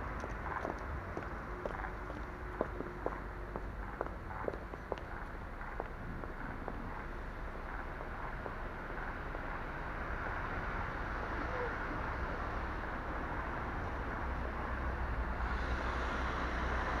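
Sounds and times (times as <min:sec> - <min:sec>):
car engine at low speed: 0:00.0 - 0:17.0
road noise: 0:00.0 - 0:17.0.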